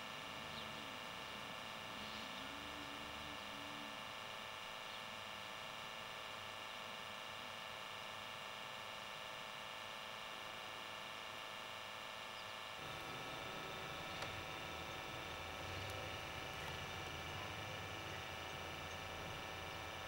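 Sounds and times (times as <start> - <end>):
electrical hum: 0.0 - 20.0
faint hiss: 12.4 - 20.0.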